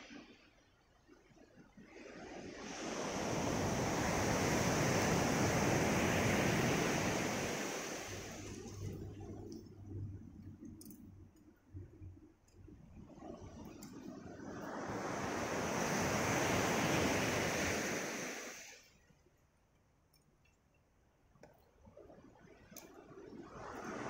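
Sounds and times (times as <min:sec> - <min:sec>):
surf washing up gravel beach: 0:01.9 - 0:09.5, 0:13.3 - 0:19.0, 0:23.4 - 0:24.0.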